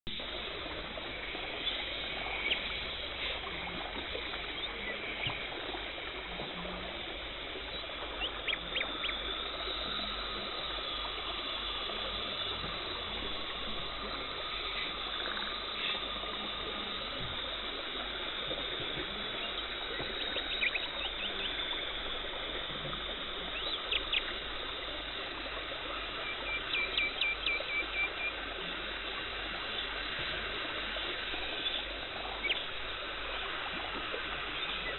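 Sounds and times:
watery hiss and gurgle: 0:00.1 - 0:34.9.

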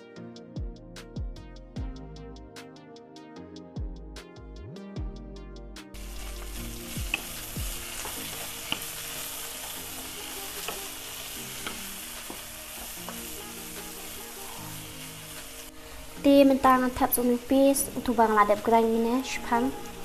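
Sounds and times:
fish and tomatoes sizzling in a pan: 0:06.0 - 0:20.0.

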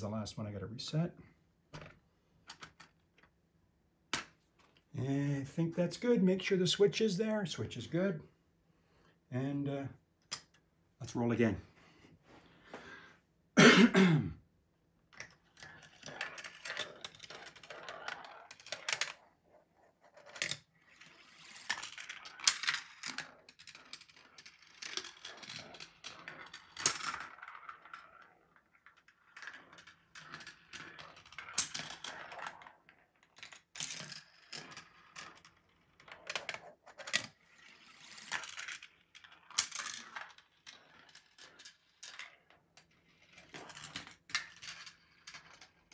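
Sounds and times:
marble run clicks and clacks: 0:15.1 - 0:45.9
marbles rolling on plastic track: 0:15.1 - 0:45.9.

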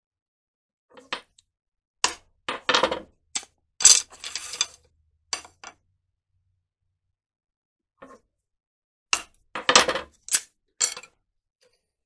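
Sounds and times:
bamboo strips clattering on wood: 0:02.1 - 0:04.8.

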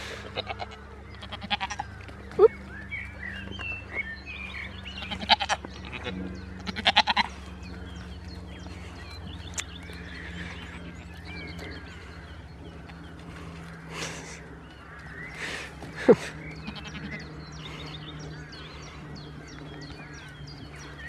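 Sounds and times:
goats bleating: 0:00.0 - 0:02.5, 0:04.8 - 0:07.5, 0:15.8 - 0:17.4.

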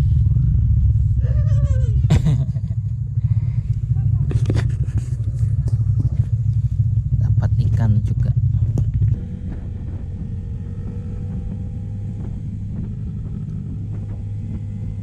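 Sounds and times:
motorcycle engine rumbling: 0:00.0 - 0:15.0
wind on microphone: 0:08.4 - 0:15.0.

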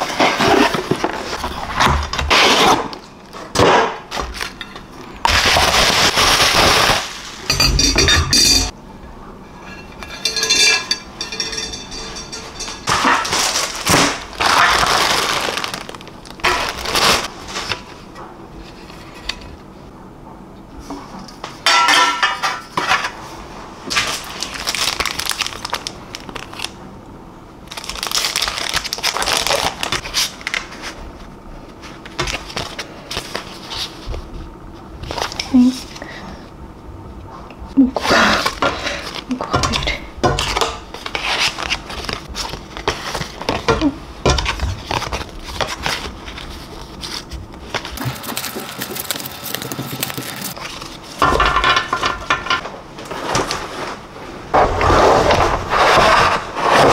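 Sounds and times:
plastic packaging crinkling: 0:05.3 - 0:07.5, 0:12.3 - 0:17.8, 0:24.0 - 0:26.8, 0:27.7 - 0:30.7, 0:44.5 - 0:51.0
metal pan being handled: 0:07.5 - 0:08.7, 0:09.8 - 0:13.5
metal rack clinking in ceramic dish: 0:07.5 - 0:08.7, 0:10.0 - 0:13.4.

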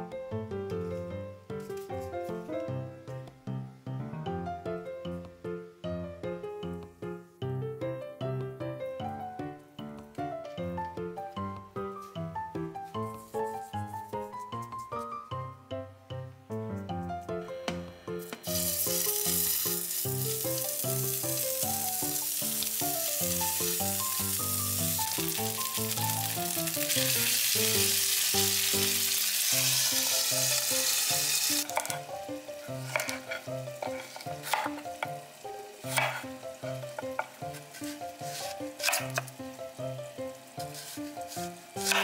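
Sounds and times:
light background music: 0:00.0 - 0:42.0
food sizzling in a pan: 0:18.4 - 0:42.0
water poured into hot pan: 0:18.5 - 0:31.7
knife cutting on wooden board: 0:32.8 - 0:34.8, 0:35.9 - 0:36.2, 0:38.3 - 0:39.2, 0:40.6 - 0:42.0.

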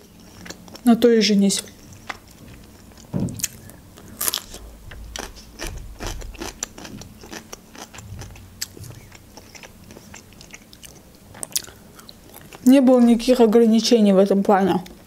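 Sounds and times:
cucumber crunching: 0:01.6 - 0:12.7.

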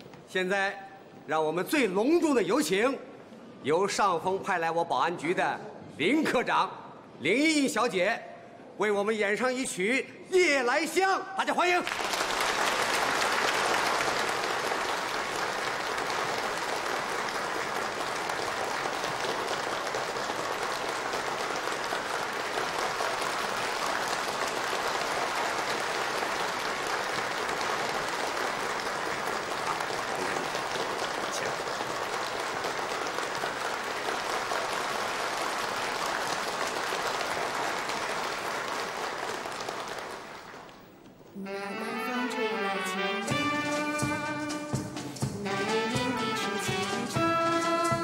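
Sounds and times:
crowd applauding: 0:11.6 - 0:41.0, 0:43.3 - 0:48.0.

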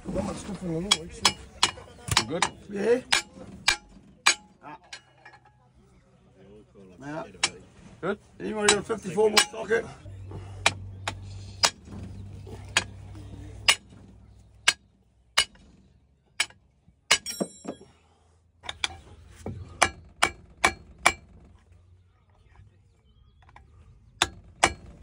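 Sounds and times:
metal hand tools clinking: 0:17.1 - 0:17.9.

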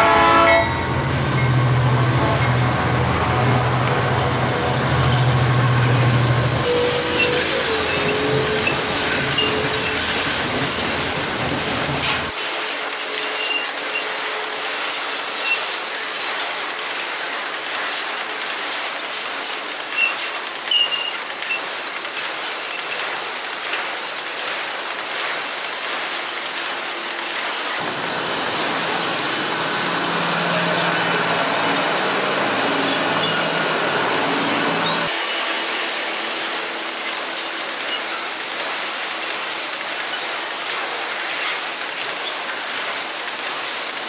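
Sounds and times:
locomotive engine drone: 0:00.0 - 0:12.4, 0:27.7 - 0:38.8
train wheels rolling on rail: 0:00.0 - 0:44.0
wheel squeals: 0:04.5 - 0:12.3, 0:13.2 - 0:14.2, 0:19.9 - 0:28.8, 0:30.5 - 0:35.2, 0:39.4 - 0:44.0.

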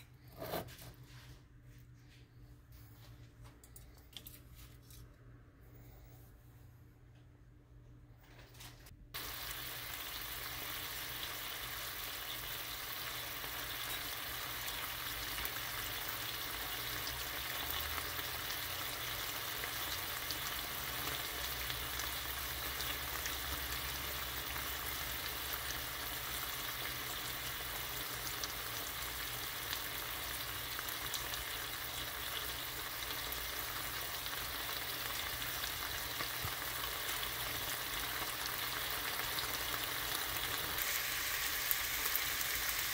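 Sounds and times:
bacon sizzling in a frying pan: 0:09.2 - 0:42.9.

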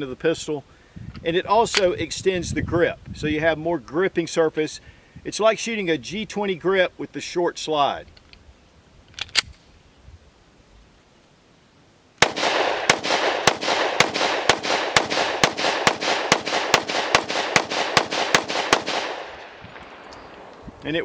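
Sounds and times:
pistol shots with echo: 0:12.2 - 0:20.5.

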